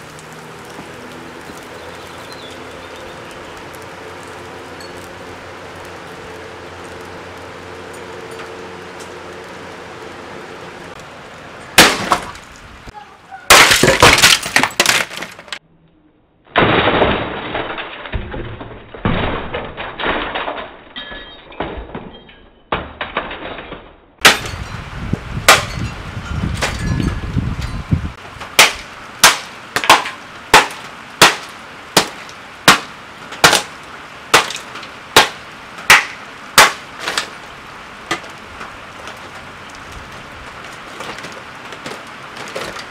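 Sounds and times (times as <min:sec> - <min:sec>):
plastic cracking and breaking: 0:13.5 - 0:15.6, 0:16.6 - 0:21.0, 0:38.1 - 0:42.9.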